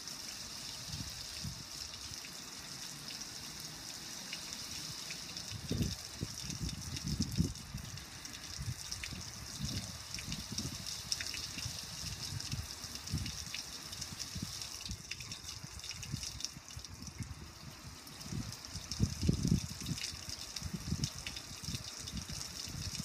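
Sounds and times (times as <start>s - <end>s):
hose spray hissing on metal grill: 0.0s - 16.6s.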